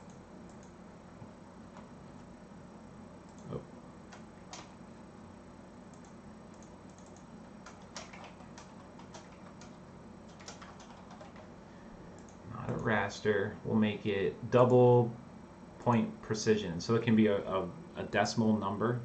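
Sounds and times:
computer keys and mouse clicking: 0.0 - 0.8, 3.3 - 4.7, 5.9 - 11.5, 12.2 - 13.0
low background hum: 0.0 - 19.0.

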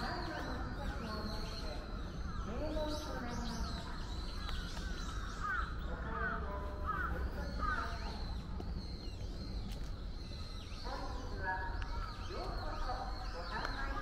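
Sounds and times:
crow cawing: 4.5 - 8.0.

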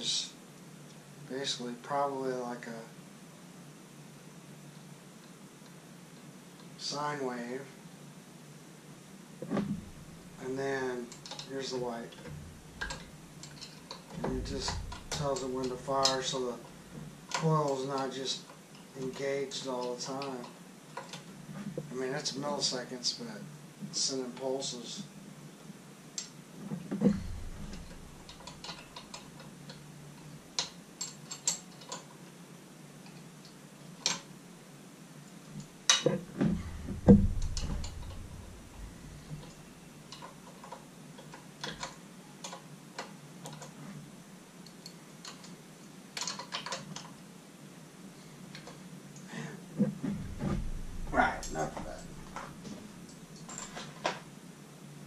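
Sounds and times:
tools tapping and knocking on motor: 12.2 - 16.3, 26.9 - 29.2, 35.9 - 40.8, 50.0 - 52.8.

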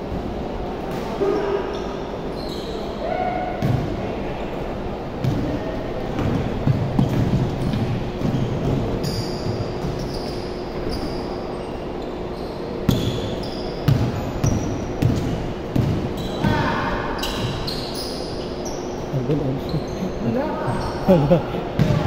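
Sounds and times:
sneakers squeaking: 0.8 - 4.0, 5.0 - 22.0
basketball bouncing on wooden floor: 6.2 - 10.1, 13.9 - 16.7.

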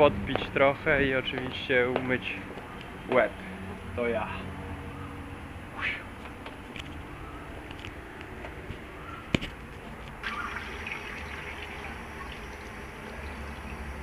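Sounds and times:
water running from tap and splashing: 10.2 - 14.0.

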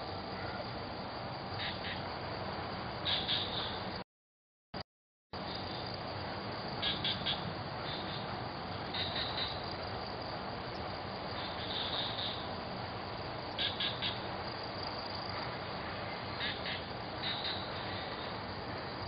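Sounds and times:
steady hiss: 5.4 - 19.0.

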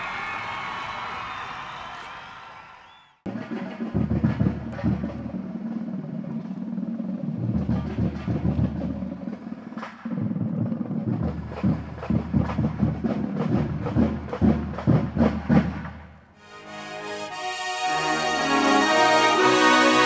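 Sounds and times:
marching drums: 3.3 - 16.2.

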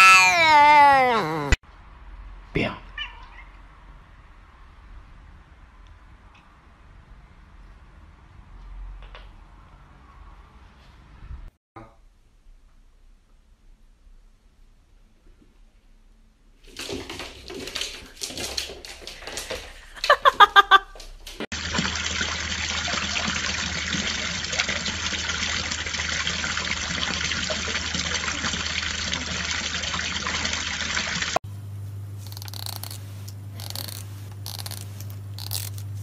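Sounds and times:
water pouring into basin: 21.5 - 31.4.

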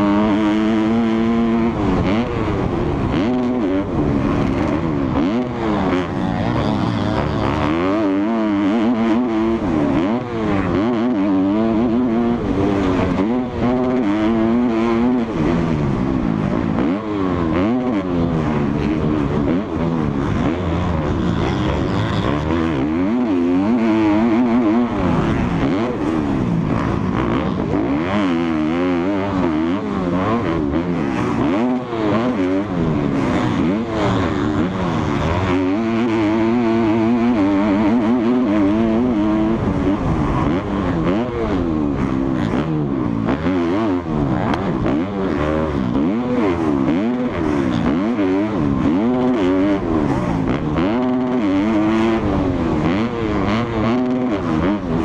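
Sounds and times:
motocross bike engine revving: 0.0 - 55.0.

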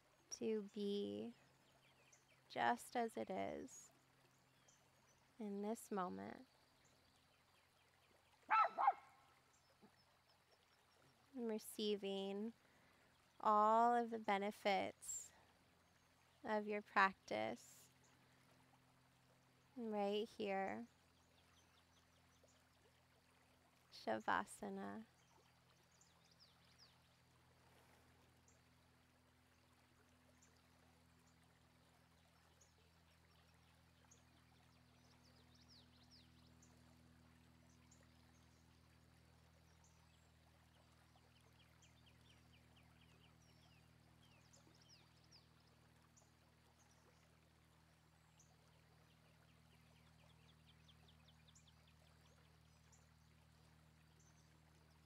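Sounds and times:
low steady hum: 0.0 - 55.0
bird trills: 8.5 - 9.1.

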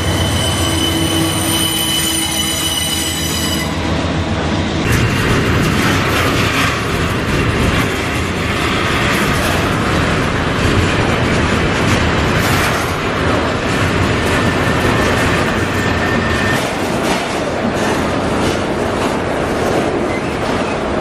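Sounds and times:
thin high squeal: 0.0 - 3.8
train wheels rumbling on rails: 0.0 - 21.0.

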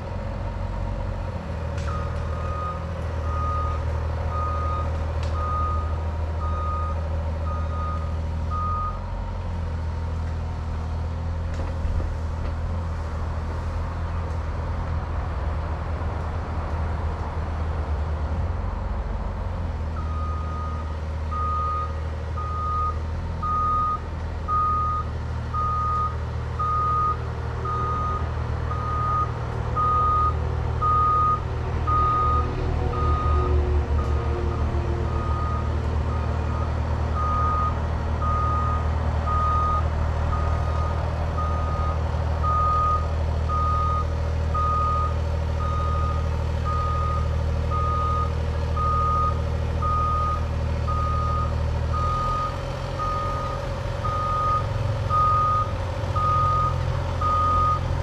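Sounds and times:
diesel engine drone: 0.0 - 58.0
excavator travel alarm beeping: 1.9 - 9.1, 20.0 - 34.2, 35.1 - 58.0.

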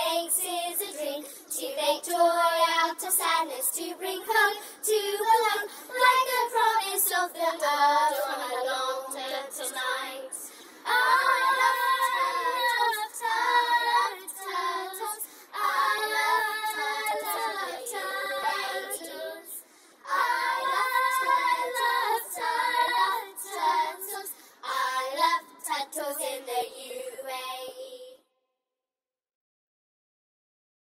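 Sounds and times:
singer breathing: 1.2 - 1.5, 4.6 - 4.8, 5.7 - 5.9, 10.4 - 10.9, 15.2 - 15.6, 19.6 - 20.1, 24.3 - 24.6
high voice singing slowly: 5.9 - 28.2.

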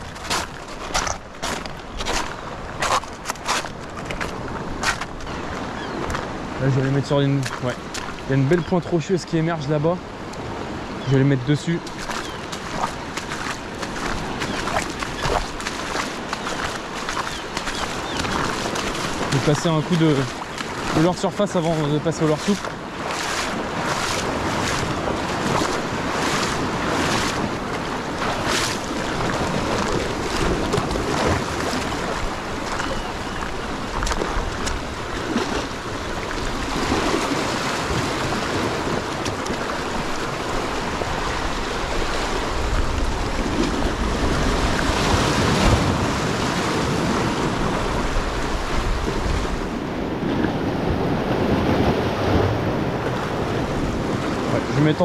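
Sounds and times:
waves washing over rocks: 0.0 - 55.0
wind buffeting microphone: 22.3 - 55.0.

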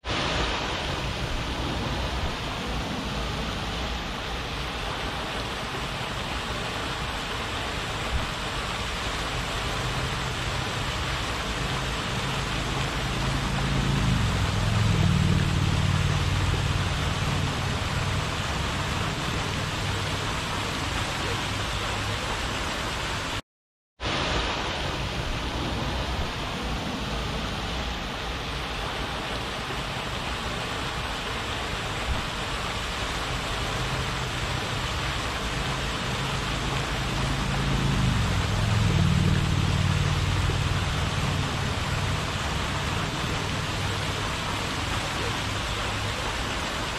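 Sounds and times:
fountain water splashing: 0.0 - 23.4, 24.0 - 46.9
low motor hum: 11.4 - 20.5, 35.4 - 44.1.

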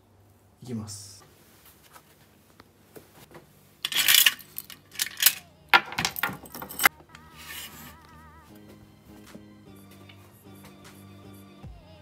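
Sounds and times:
keys clinking on metal tray: 3.8 - 6.9.

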